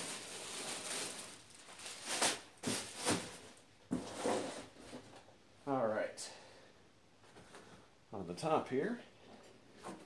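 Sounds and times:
plastic bag crinkling and rustling: 0:00.0 - 0:04.5.

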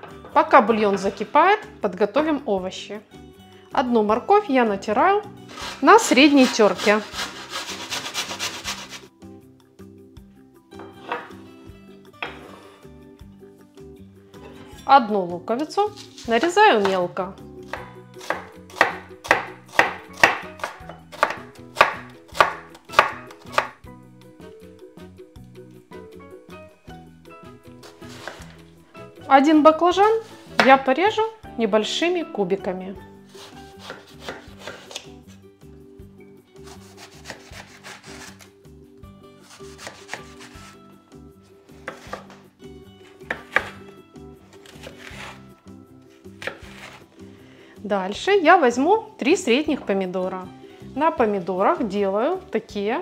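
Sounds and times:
knife chopping on wooden board: 0:17.7 - 0:23.8, 0:27.8 - 0:28.6, 0:33.3 - 0:35.1, 0:36.6 - 0:38.4, 0:39.4 - 0:40.8, 0:41.7 - 0:42.4, 0:43.0 - 0:43.9, 0:44.5 - 0:45.4, 0:46.4 - 0:47.0.

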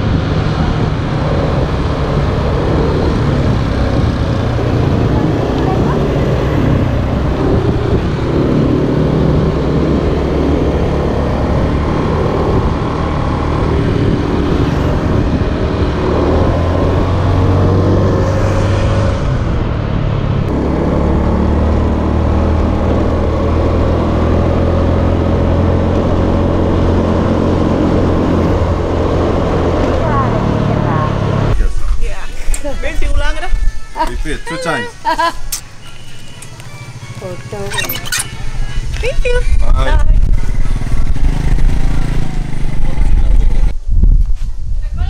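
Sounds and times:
wind and road noise: 0:00.0 - 0:45.0
scooter engine running: 0:35.7 - 0:43.7.

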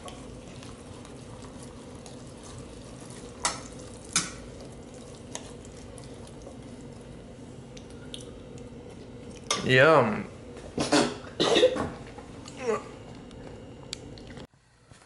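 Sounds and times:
fork mixing wet pasta salad: 0:00.0 - 0:07.1
faint steady hum: 0:00.0 - 0:15.0.

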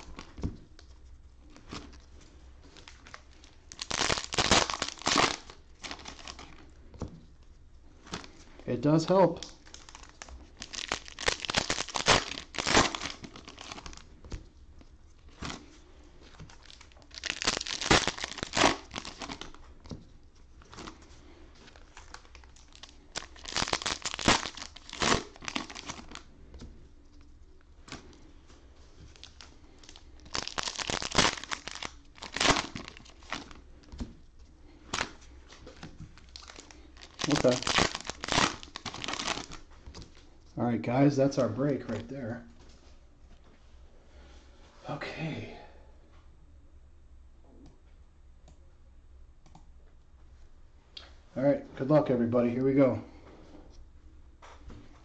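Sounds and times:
cellophane packs crinkling: 0:00.0 - 0:00.9, 0:02.7 - 0:06.7, 0:08.0 - 0:14.2, 0:15.2 - 0:19.8, 0:20.6 - 0:26.3, 0:29.1 - 0:33.7, 0:34.8 - 0:40.2.

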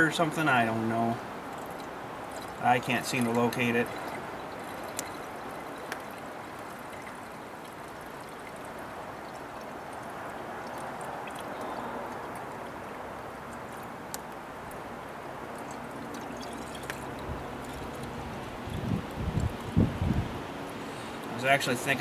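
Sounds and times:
liquid pouring from a jug: 0:01.4 - 0:12.7, 0:15.4 - 0:20.0.

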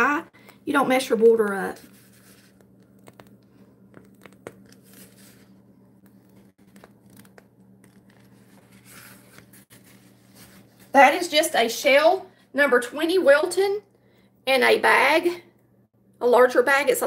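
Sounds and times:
piping bag crinkling: 0:01.5 - 0:10.9.

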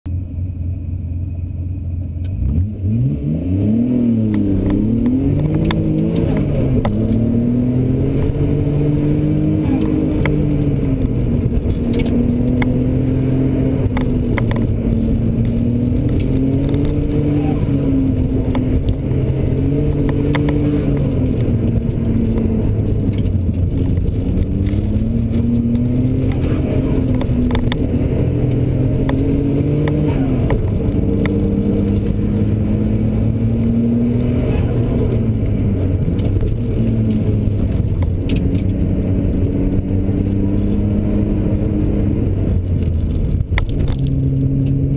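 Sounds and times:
tyre and road noise: 0:00.1 - 0:44.9
car engine revving: 0:00.2 - 0:44.9
small clicks and rattles: 0:19.9 - 0:27.9.

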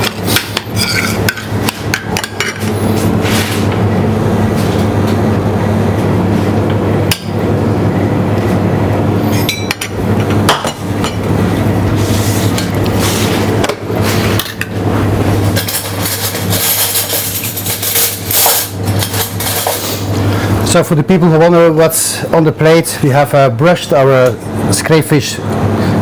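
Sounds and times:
steady low hum: 0:00.0 - 0:26.0
metal spoon scraping steel bowl: 0:00.7 - 0:01.2.

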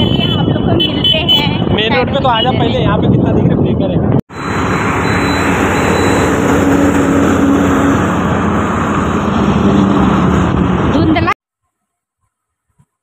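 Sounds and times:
road traffic noise: 0:00.0 - 0:11.4
wind noise on microphone: 0:00.0 - 0:11.4
trucks and motorbikes passing: 0:04.3 - 0:11.4.

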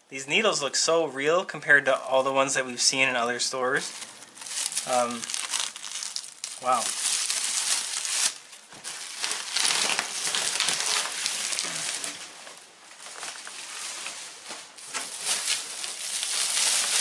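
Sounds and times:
plastic wrap crinkling: 0:03.7 - 0:17.0.

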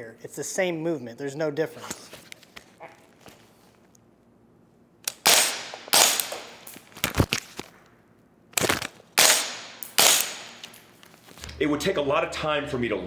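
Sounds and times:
rifle shots with echo: 0:05.2 - 0:06.7, 0:09.2 - 0:10.6.

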